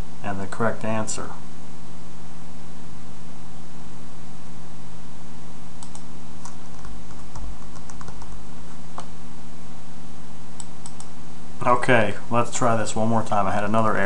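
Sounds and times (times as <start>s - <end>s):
hiss and electrical hum: 0.0s - 14.0s
keyboard keys clicking: 5.8s - 8.4s.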